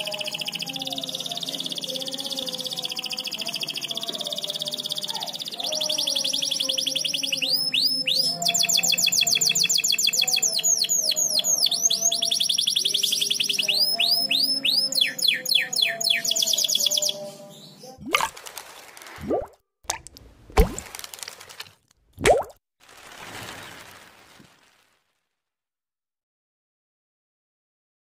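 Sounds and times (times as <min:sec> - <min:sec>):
canary singing trills and whistles: 0:00.0 - 0:18.3.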